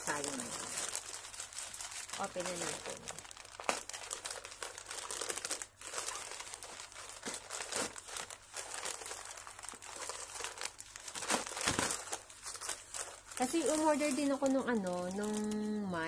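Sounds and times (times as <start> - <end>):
plastic pouch crinkling: 0.0 - 16.0.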